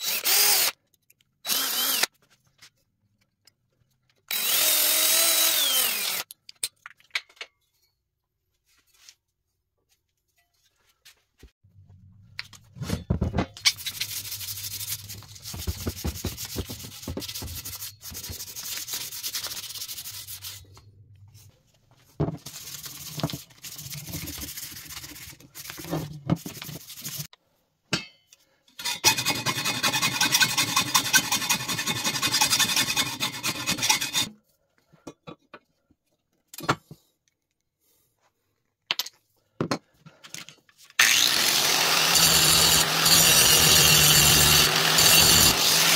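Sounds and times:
hand sanding metal with abrasive pad: 13.8s - 20.6s, 22.5s - 27.3s, 29.1s - 34.3s, 41.8s - 45.9s
power tool running loudly: 41.0s - 45.9s.

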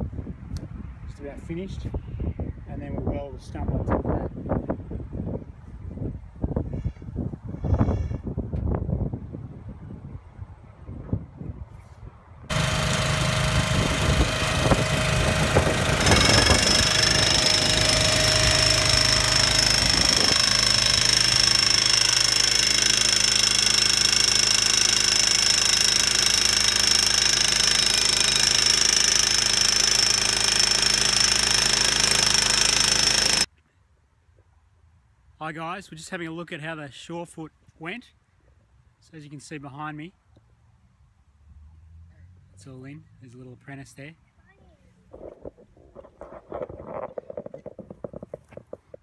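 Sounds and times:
jackhammer hammering: 12.5s - 33.5s.

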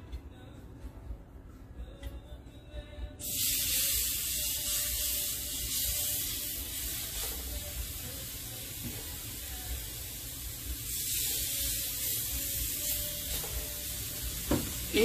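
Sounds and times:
steaks sizzling in a pan: 3.2s - 15.0s.

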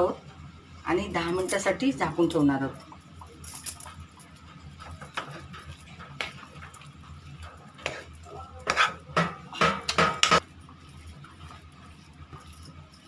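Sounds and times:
metal utensil scraping pan: 7.8s - 10.4s.

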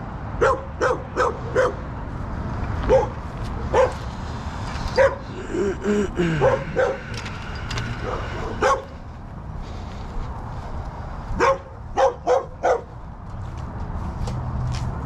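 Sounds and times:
dog barking: 0.4s - 1.8s, 2.9s - 4.0s, 5.0s - 5.3s, 6.4s - 7.0s, 8.0s - 8.9s, 11.4s - 12.9s.

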